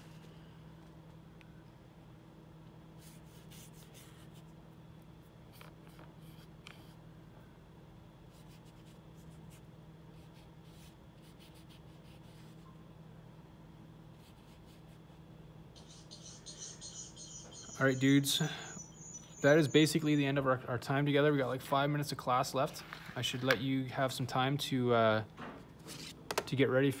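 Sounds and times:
low electrical hum: 0.0s - 27.0s
paintbrush strokes scratching: 3.0s - 4.5s.

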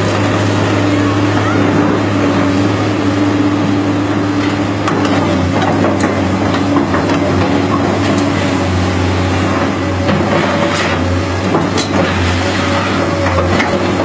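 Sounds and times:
excavator diesel engine running: 0.0s - 14.0s
excavator tracks clanking on gravel: 4.4s - 8.7s, 9.4s - 14.0s.

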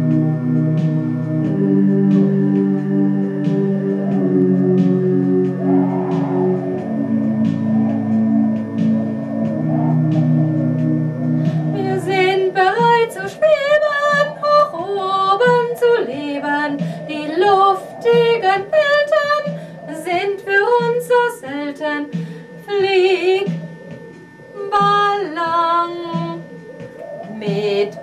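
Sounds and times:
held low chord: 0.0s - 28.0s
soft accompaniment: 0.0s - 28.0s
woman singing with vibrato: 11.5s - 23.8s, 24.5s - 26.6s, 27.2s - 28.0s.

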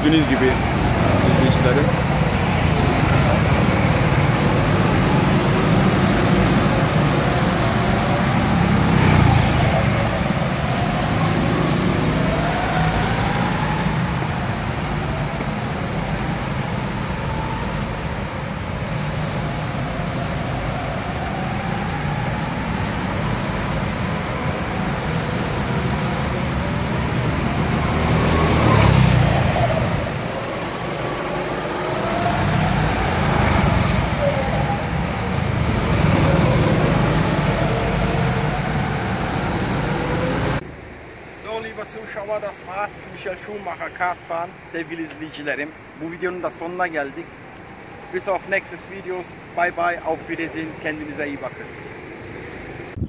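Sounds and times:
go-kart engines running: 0.0s - 15.8s.

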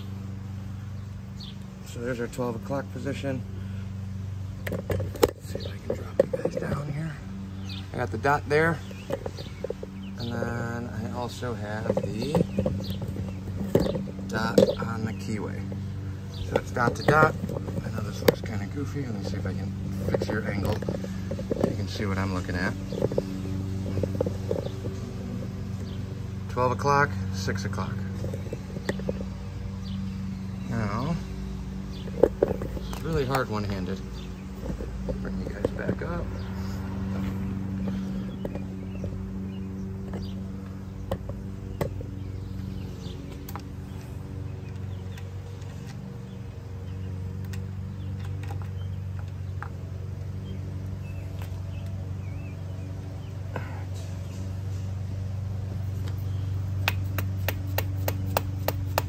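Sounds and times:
steady low hum: 0.0s - 59.0s
camera handling knocks and rubs: 4.6s - 6.9s, 8.8s - 10.1s, 11.8s - 14.8s, 16.5s - 18.5s, 19.8s - 21.9s, 22.8s - 25.5s, 32.0s - 33.1s.

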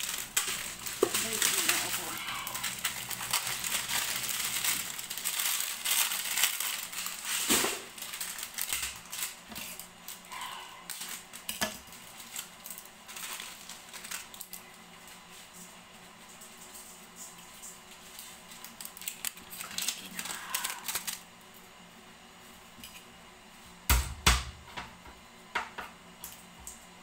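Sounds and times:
crunching and crinkling handling: 0.0s - 21.3s.

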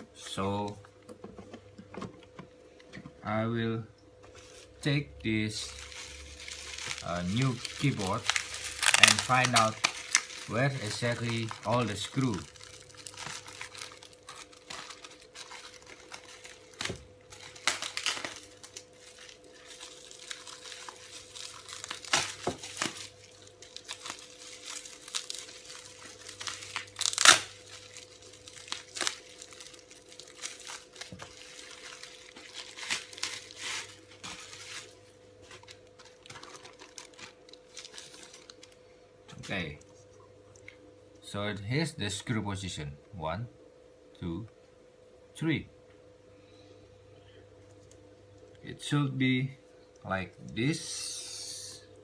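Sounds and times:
bubble wrap crinkling and tearing: 4.4s - 39.8s.

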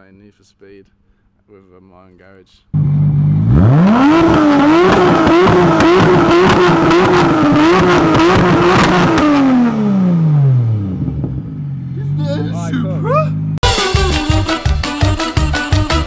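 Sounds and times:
car engine revving with crackles: 2.8s - 12.3s.

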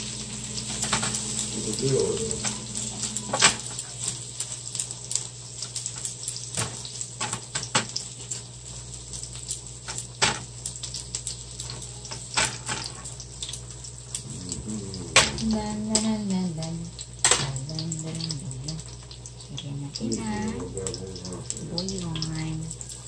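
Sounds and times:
low hum: 0.0s - 4.0s, 14.2s - 18.8s
onion and garlic sizzling: 0.0s - 23.0s.

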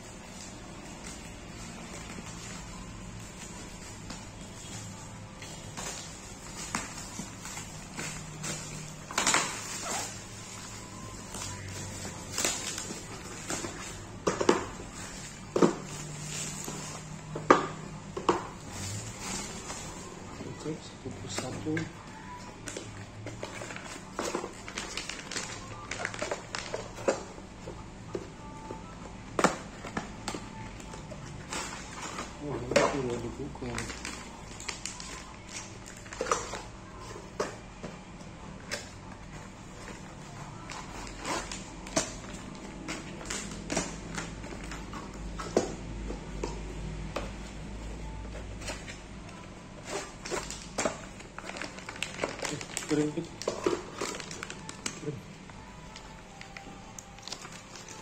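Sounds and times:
plastic bags rustling: 0.0s - 17.4s, 18.0s - 27.3s, 29.8s - 37.4s, 47.4s - 58.0s.

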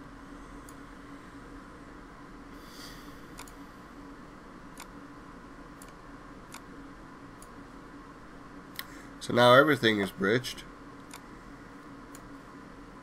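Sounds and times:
low hum and hiss: 0.0s - 13.0s
computer mouse clicks: 3.3s - 3.6s, 5.8s - 6.7s.

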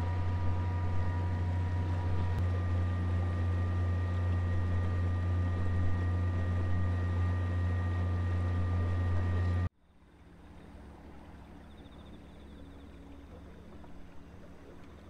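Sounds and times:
outboard motor running: 0.0s - 15.0s.

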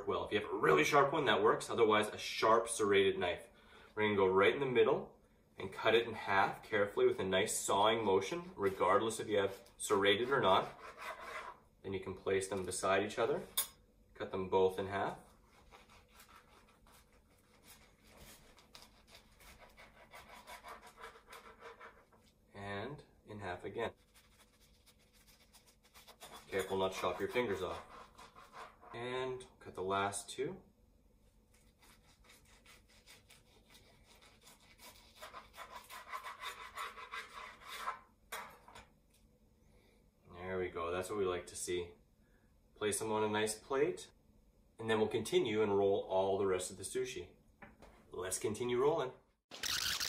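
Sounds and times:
serrated knife sawing sushi rolls: 9.4s - 11.6s, 15.3s - 22.3s, 24.3s - 29.1s, 31.5s - 38.1s.

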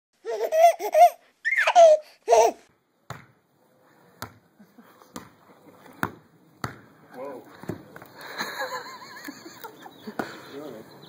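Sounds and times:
ball bouncing thumps: 3.1s - 3.4s, 4.2s - 4.5s, 5.1s - 7.0s.

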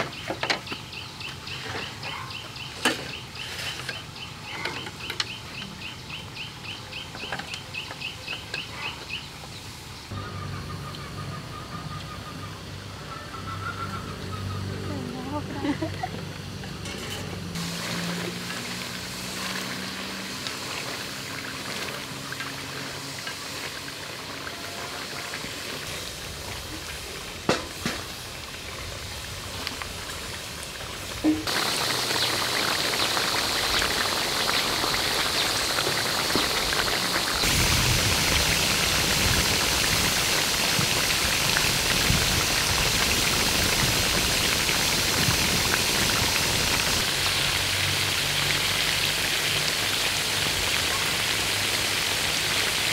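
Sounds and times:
shrimp sizzling in hot oil: 17.5s - 52.9s.

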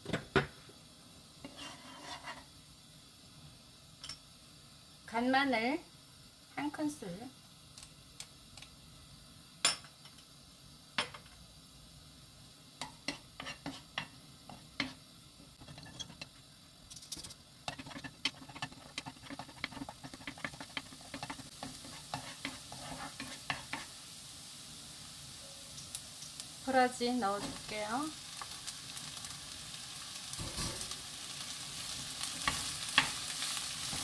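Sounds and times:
oil sizzling and crackling: 0.0s - 34.0s
wooden spoon scraping a pan: 1.4s - 2.5s, 13.0s - 15.0s, 15.6s - 24.0s.

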